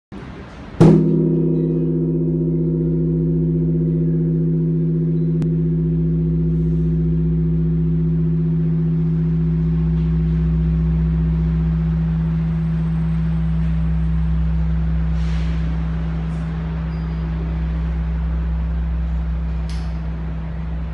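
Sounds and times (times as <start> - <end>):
large bell struck by wooden log: 0.8 - 15.2
deep bell hum: 0.8 - 20.9.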